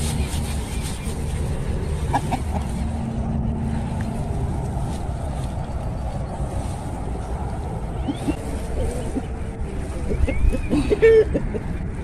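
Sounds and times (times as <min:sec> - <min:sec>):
low rumble: 0:00.0 - 0:12.0
chickens clucking: 0:01.9 - 0:03.0, 0:07.8 - 0:12.0.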